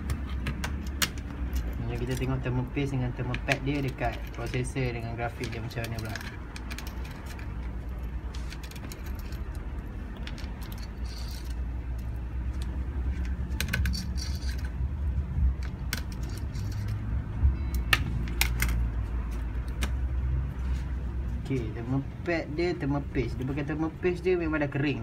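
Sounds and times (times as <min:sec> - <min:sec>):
small metal clicks and clinks: 0:00.8 - 0:02.4, 0:03.3 - 0:12.2, 0:13.6 - 0:14.8, 0:15.6 - 0:17.0.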